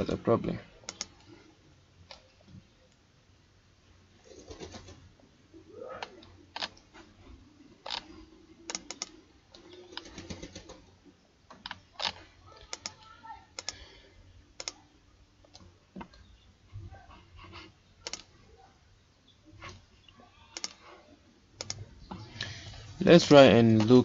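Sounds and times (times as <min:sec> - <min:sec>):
computer keyboard and mouse clicks: 0:00.9 - 0:01.3, 0:08.7 - 0:10.8, 0:11.5 - 0:13.8, 0:14.6 - 0:14.8, 0:18.0 - 0:18.3, 0:20.6 - 0:20.8, 0:21.6 - 0:21.8.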